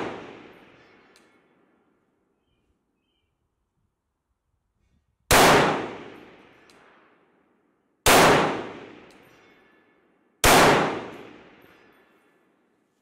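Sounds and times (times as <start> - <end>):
rifle shots: 0.0 - 0.6, 5.3 - 6.4, 8.0 - 9.1, 10.4 - 11.6.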